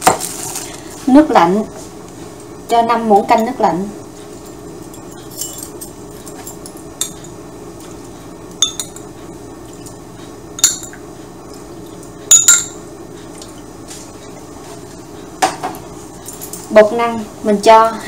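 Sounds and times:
metal measuring spoons clinking: 4.9 - 7.4.

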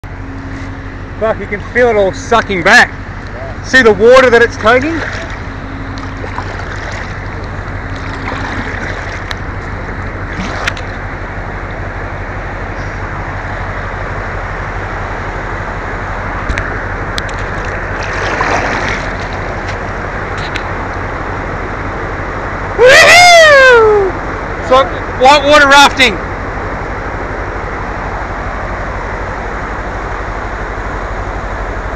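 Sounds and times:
churning whitewater: 0.0 - 31.9
steady low hum: 0.0 - 31.9
small knocks and splashes: 4.9 - 9.4, 10.3 - 11.0, 16.5 - 19.8.

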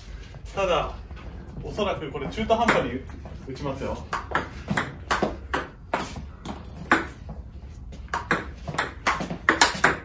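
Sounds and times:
ping-pong ball clicking: 8.1 - 10.0.

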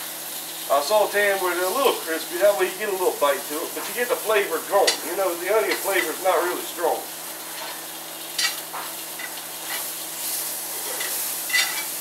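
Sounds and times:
onions sizzling in a skillet: 0.0 - 12.0
spoon clinking against pan: 11.0 - 11.9.

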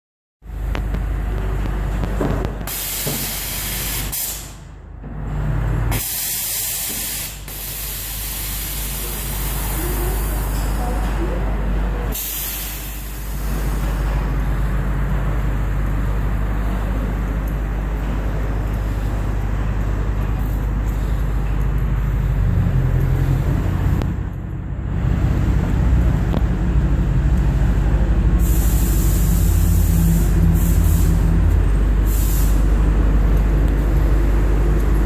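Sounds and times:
air suspension hissing: 2.6 - 4.7, 5.9 - 10.6, 12.1 - 14.0, 28.4 - 31.4, 32.0 - 32.8.

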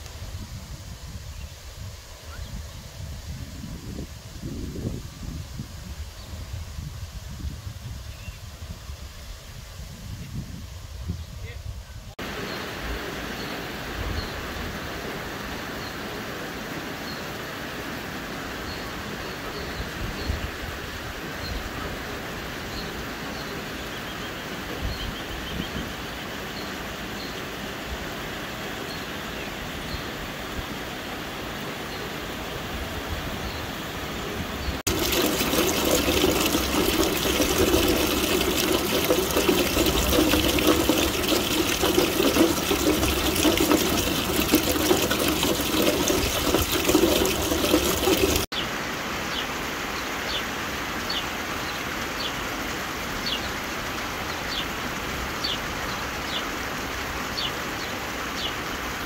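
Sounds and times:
rainwater pouring from downspout: 34.8 - 48.5
steady rain falling: 47.2 - 59.0.

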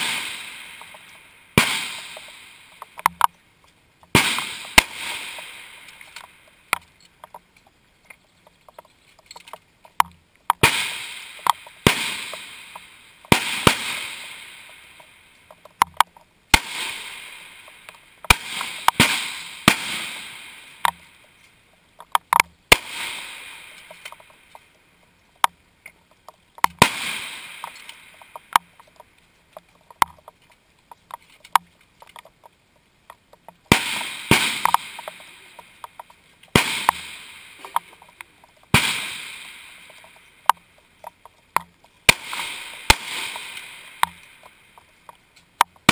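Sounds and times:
rifle shots echoing: 0.0 - 3.0, 4.1 - 6.5, 10.6 - 15.1, 16.5 - 21.1, 22.7 - 24.4, 26.7 - 28.8, 33.6 - 40.2, 42.1 - 44.5
small clicks and knocks: 2.1 - 10.6, 11.4 - 13.4, 14.7 - 16.3, 20.8 - 22.6, 23.7 - 26.8, 27.6 - 33.7, 34.6 - 38.7, 39.8 - 42.1, 42.7 - 45.9.

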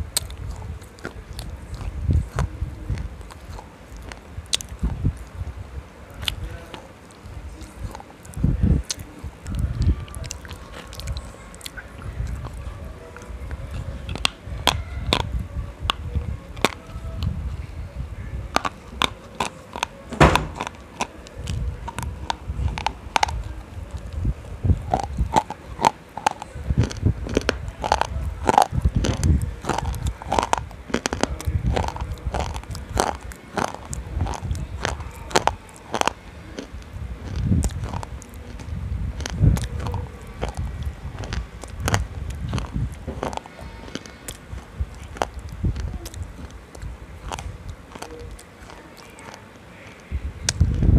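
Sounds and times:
chewing: 0.0 - 17.7, 18.5 - 50.9
crunching of hard lump: 18.6 - 24.2, 24.8 - 50.6.

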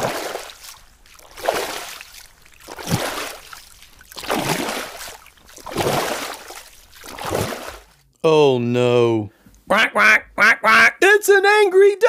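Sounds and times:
stomping splashes in puddle: 0.0 - 8.0.

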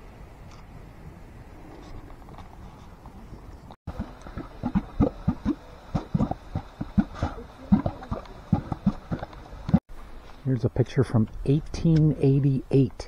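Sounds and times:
mud pot bubbling and plopping: 3.9 - 9.8.

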